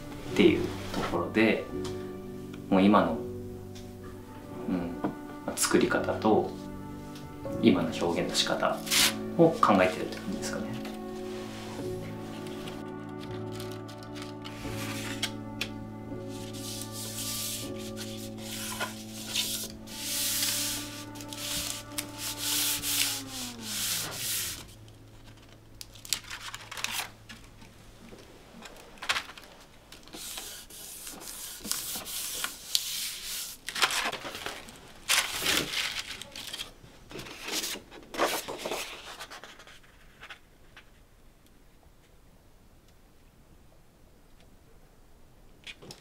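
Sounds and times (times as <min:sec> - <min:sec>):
music with held notes: 0:00.0 - 0:28.2
hands rustling paper: 0:07.9 - 0:41.1.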